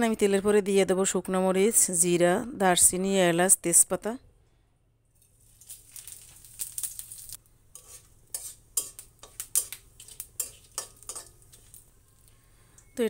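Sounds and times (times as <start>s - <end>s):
spatula scraping a pan: 5.2s - 11.9s
spices sizzling in hot oil: 5.2s - 13.0s.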